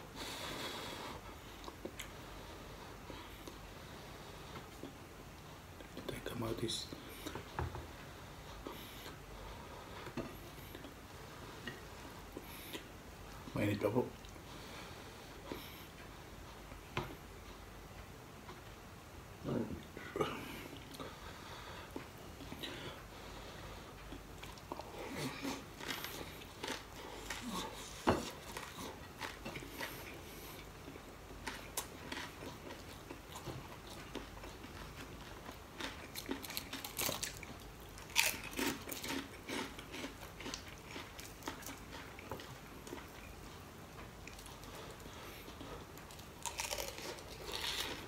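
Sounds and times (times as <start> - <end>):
crunching and chewing crisp fish: 24.0 - 48.0.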